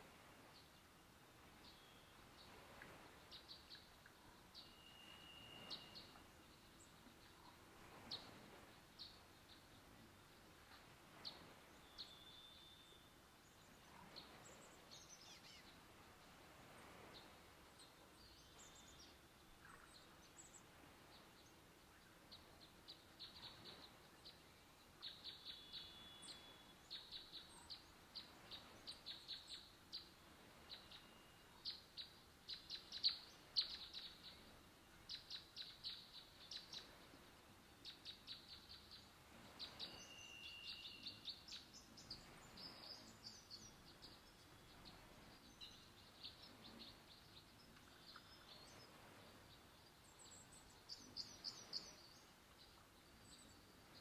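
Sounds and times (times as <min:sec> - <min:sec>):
small birds chirping: 0:00.4 - 0:16.4, 0:17.0 - 0:54.0
whistled bird notes: 0:04.5 - 0:06.3, 0:11.8 - 0:13.2, 0:25.1 - 0:27.8, 0:39.6 - 0:44.2.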